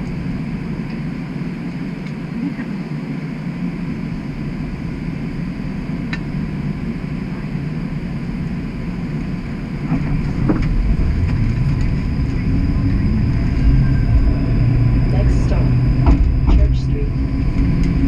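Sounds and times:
streetcar rumbling on rails: 8.6 - 18.0.

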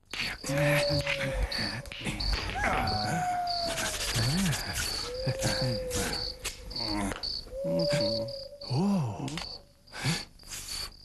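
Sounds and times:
crickets chirping: 0.0 - 11.0
scattered clicks: 9.2 - 9.6.

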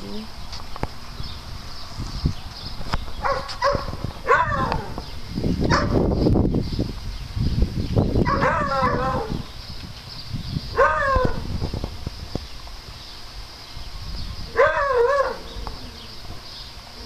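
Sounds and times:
dogs barking and yipping: 2.8 - 6.1, 8.2 - 9.5, 10.7 - 11.5, 14.4 - 16.2.

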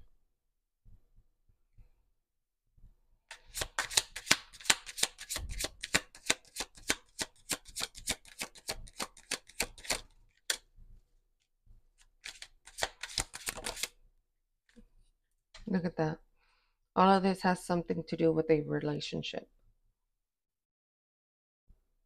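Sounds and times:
cards being shuffled: 3.3 - 10.7, 12.0 - 14.0.

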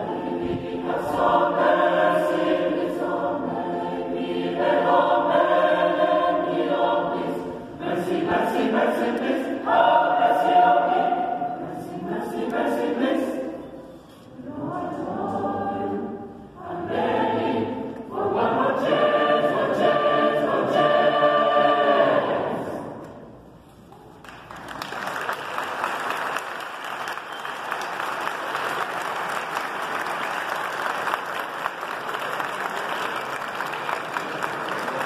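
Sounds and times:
mixed choir singing: 0.0 - 23.3
audience applause: 24.2 - 35.0.

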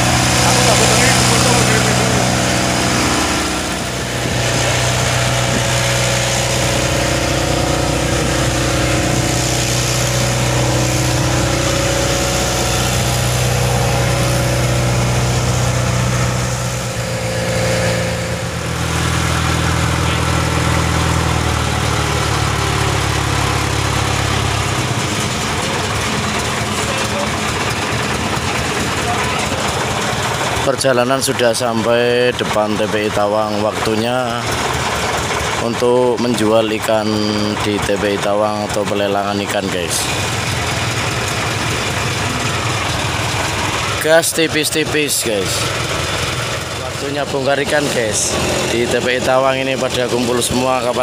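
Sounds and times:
boat engine running: 0.0 - 51.0.

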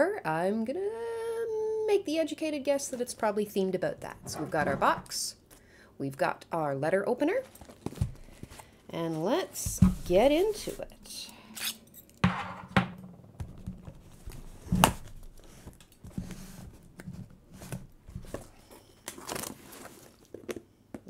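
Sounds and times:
packing tape scratching and tearing: 11.6 - 11.9, 14.0 - 20.6.

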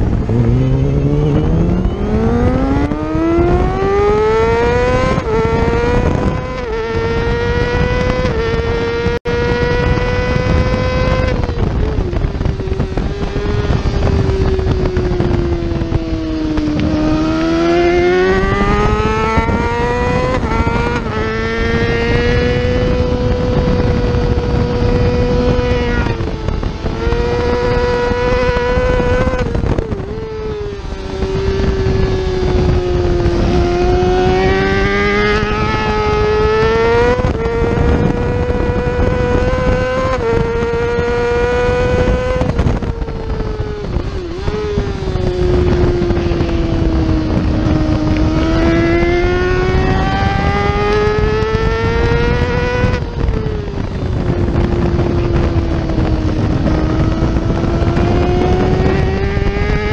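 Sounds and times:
motorcycle engine revving high: 0.0 - 59.9
wind noise: 0.0 - 59.9.

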